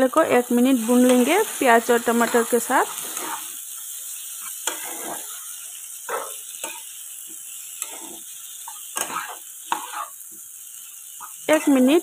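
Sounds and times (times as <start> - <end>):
vegetables sizzling in oil: 0.0 - 12.0
spatula scraping pan: 0.8 - 3.6, 4.4 - 6.9, 7.7 - 10.2.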